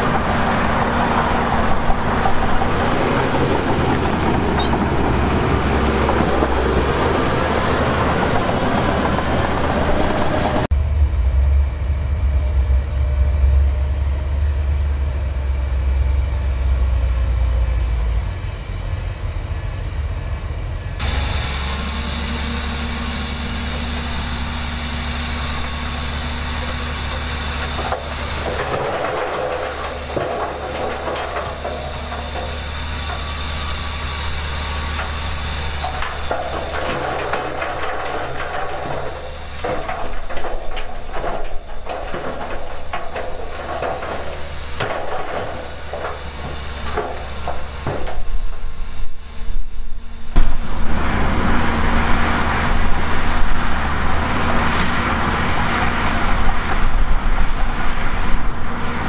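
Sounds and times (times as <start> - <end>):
heavy machinery engine rumble: 0.0 - 59.0
rattling and clattering: 25.4 - 49.2.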